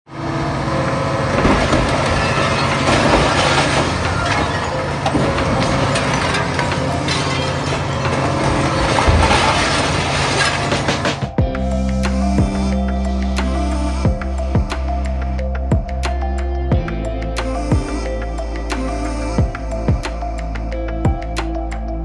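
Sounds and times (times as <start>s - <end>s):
excavator diesel engine running: 0.1s - 16.0s
glass and metal cracking: 1.2s - 11.4s.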